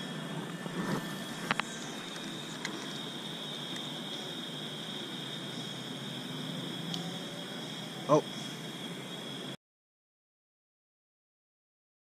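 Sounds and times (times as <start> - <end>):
insect chorus: 0.0 - 9.6.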